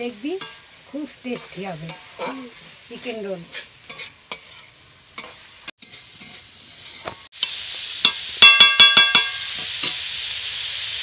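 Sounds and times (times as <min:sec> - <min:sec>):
oil sizzling: 0:00.0 - 0:11.0
metal spatula scraping pan: 0:00.3 - 0:07.3
spatula knocking ringing pan: 0:08.0 - 0:10.0.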